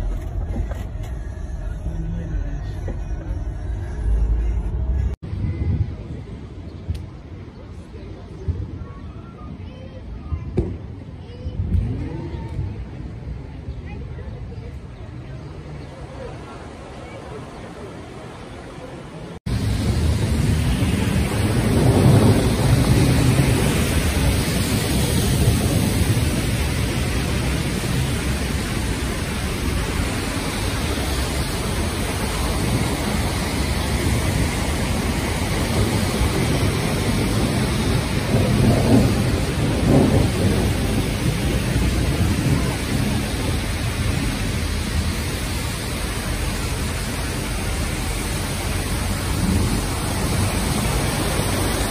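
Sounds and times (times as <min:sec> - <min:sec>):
rain hiss: 0:15.9 - 0:51.9
rolling thunder rumble: 0:19.4 - 0:51.9.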